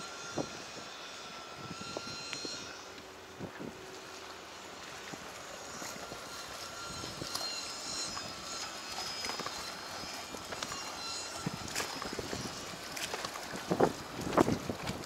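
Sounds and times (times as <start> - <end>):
outdoor harbour background noise: 0.0 - 15.0.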